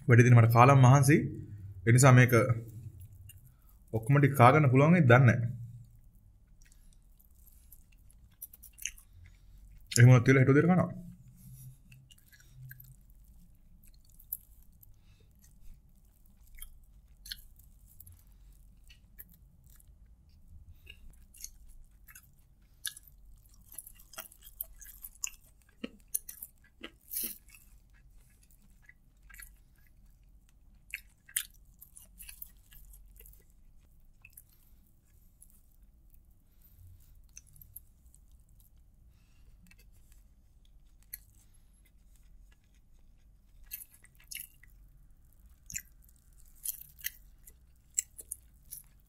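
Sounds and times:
close chewing with wet mouth smacks: 5.8s - 10.0s, 11.1s - 49.0s.

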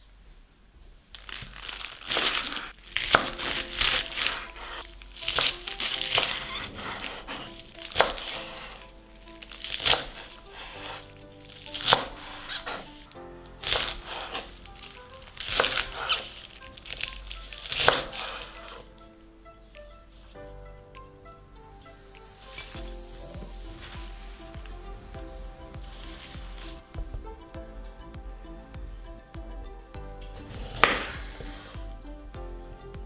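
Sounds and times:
leaves rustling: 0.9s - 32.2s
soft background music: 1.6s - 33.0s
knife cutting crisp lettuce: 1.7s - 8.8s, 9.4s - 11.0s, 11.6s - 13.0s, 13.6s - 18.9s.

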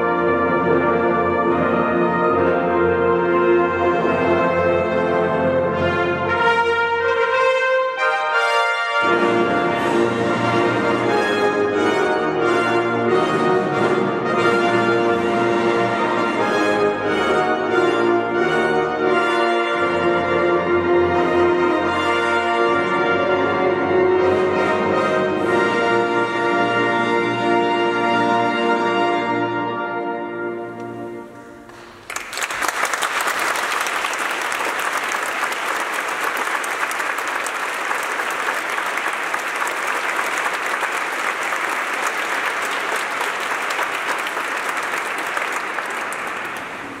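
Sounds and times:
audience applause: 31.7s - 47.0s.

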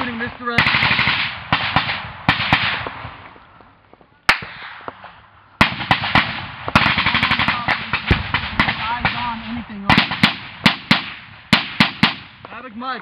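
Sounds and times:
automatic gunfire bursts: 0.0s - 3.0s, 5.6s - 12.3s
gunshots echoing: 0.0s - 12.7s.

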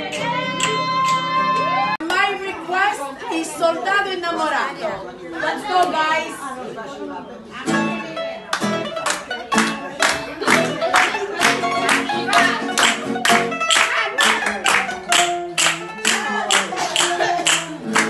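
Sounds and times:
hands clapping on the beat: 0.0s - 1.4s, 8.5s - 18.0s
women singing: 0.0s - 2.0s, 15.9s - 18.0s
mandolin and acoustic guitar strumming: 7.6s - 18.0s.

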